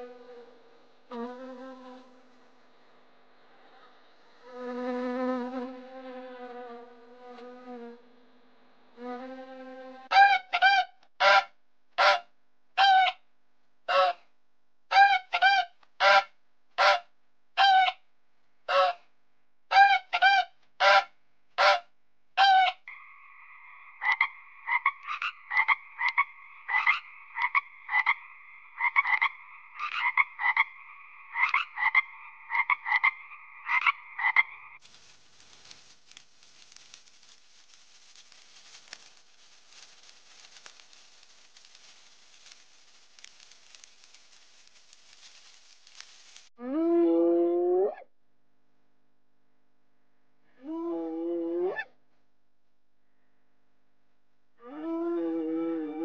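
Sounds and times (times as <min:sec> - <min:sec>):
faint hiss: 0:00.0 - 0:10.1, 0:34.8 - 0:46.6
goose honking: 0:10.1 - 0:12.2, 0:14.9 - 0:17.0, 0:19.7 - 0:21.8
frogs croaking: 0:22.7 - 0:34.8.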